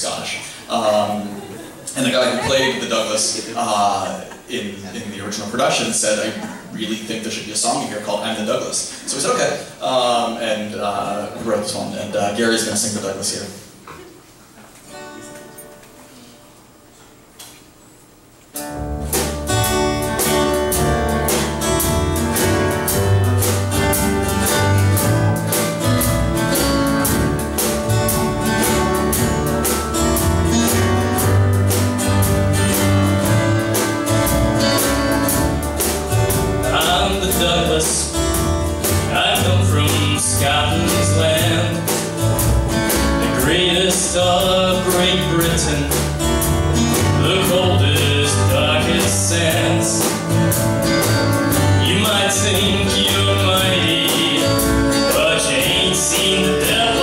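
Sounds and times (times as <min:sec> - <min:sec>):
upright bass: 0:00.0 - 0:13.2, 0:18.6 - 0:57.0
acoustic guitar: 0:00.0 - 0:57.0
drum kit: 0:18.5 - 0:57.0
man singing: 0:36.6 - 0:38.3, 0:39.0 - 0:42.1, 0:43.1 - 0:46.2, 0:46.8 - 0:50.3, 0:51.7 - 0:57.0.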